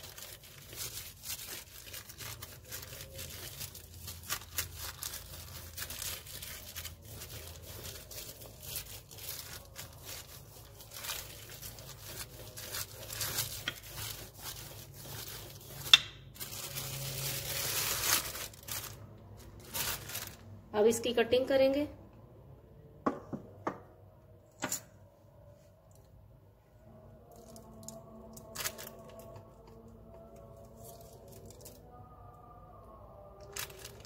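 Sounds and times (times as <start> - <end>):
plastic sheet crinkling: 0.0 - 20.6, 27.3 - 29.8, 30.6 - 31.8, 33.4 - 34.0
rolling pin rolling dough: 0.2 - 17.8.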